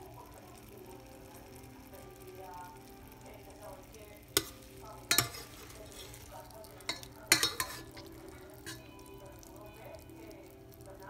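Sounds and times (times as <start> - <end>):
sauce sizzling: 0.0 - 11.0
metal tongs clacking on pan: 3.8 - 9.6.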